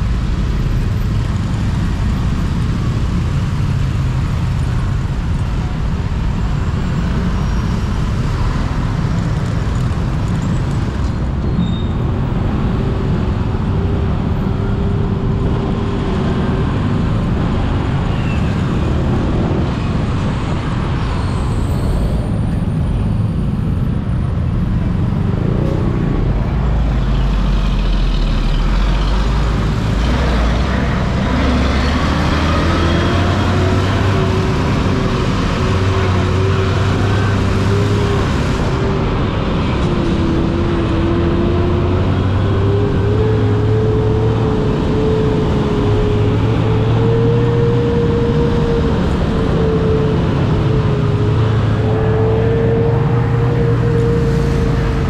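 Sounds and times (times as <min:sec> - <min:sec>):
motorbike engine and road noise: 0:00.0 - 0:55.0
engine tone climbing in pitch: 0:25.2 - 0:55.0.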